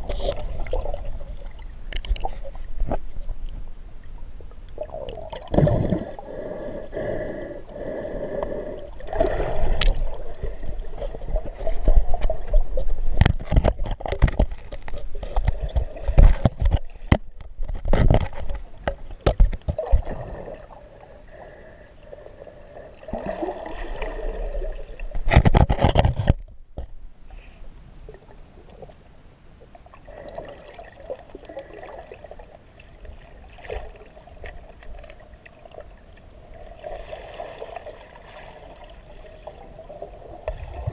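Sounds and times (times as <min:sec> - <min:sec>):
underwater sloshing and gurgling: 0:00.0 - 0:40.9.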